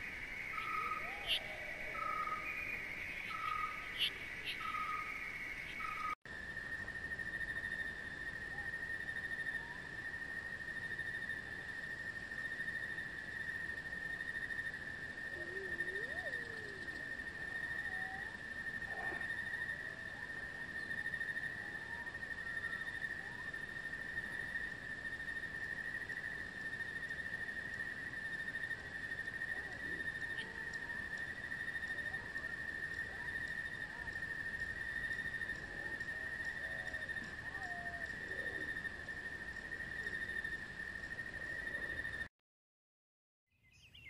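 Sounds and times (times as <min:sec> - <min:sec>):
faint bird calls: 0:00.0 - 0:06.2, 0:15.3 - 0:21.0
insects trilling: 0:00.0 - 0:42.3.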